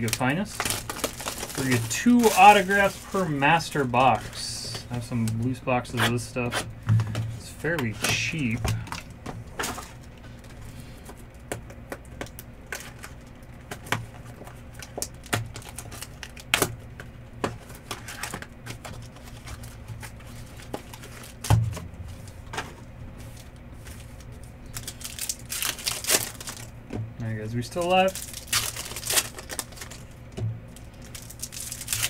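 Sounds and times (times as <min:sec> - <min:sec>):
card packs handled and opened: 0:00.0 - 0:26.8, 0:27.5 - 0:32.0
steady low hum: 0:00.0 - 0:32.0.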